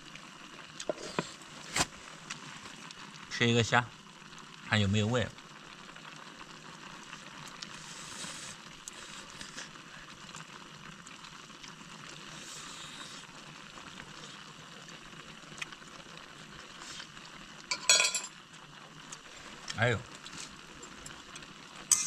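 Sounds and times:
pot of broth hissing: 0.0 - 4.6, 5.3 - 18.0, 18.7 - 22.0
clattering clinks: 17.7 - 18.3.

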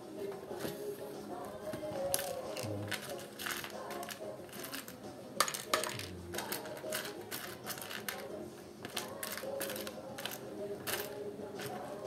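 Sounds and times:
faint background music: 0.0 - 12.0
plastic blocks clicking and rattling: 2.1 - 11.1.

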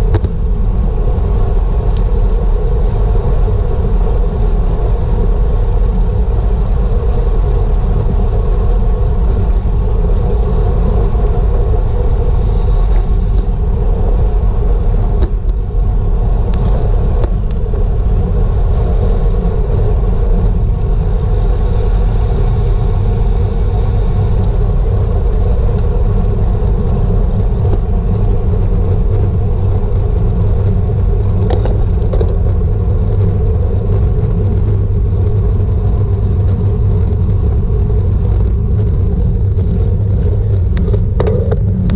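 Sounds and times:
wind rumble: 0.0 - 41.9.

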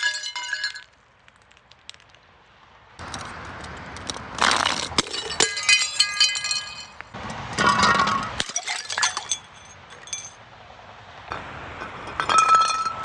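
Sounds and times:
glass jars shattering on concrete: 0.0 - 0.9, 4.4 - 7.0, 7.6 - 10.4, 12.1 - 13.0
tinkling glass shards: 5.0 - 7.0, 7.8 - 10.4
ringing glass clinks: 5.1 - 7.0, 7.6 - 10.4.

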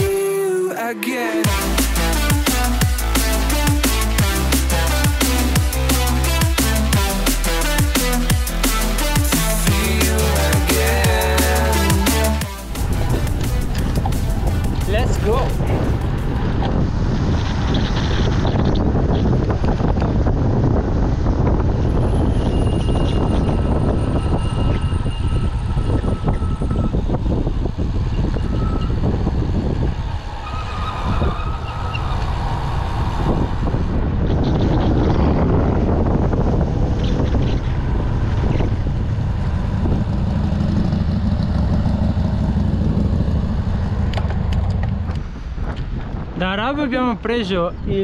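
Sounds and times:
wind buffeting microphone: 12.7 - 48.0.

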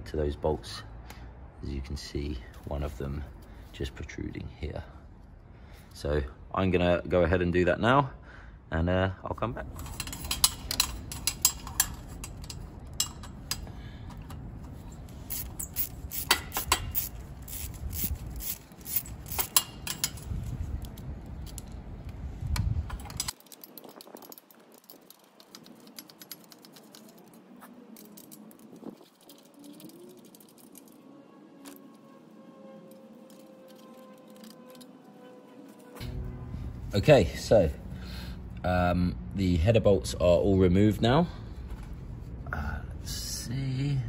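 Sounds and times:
metal tools clinking: 9.7 - 21.8, 22.9 - 31.0, 32.9 - 36.2
hand ratchet clicking: 9.8 - 14.3, 15.3 - 21.7, 22.9 - 27.4, 28.0 - 31.0, 33.3 - 34.9.

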